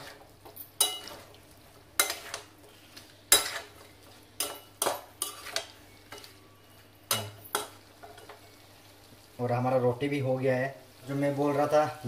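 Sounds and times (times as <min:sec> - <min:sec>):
spatula clanking and scraping pan: 0:00.0 - 0:01.4, 0:02.0 - 0:06.4, 0:07.1 - 0:08.4
faint sizzle: 0:00.0 - 0:12.0.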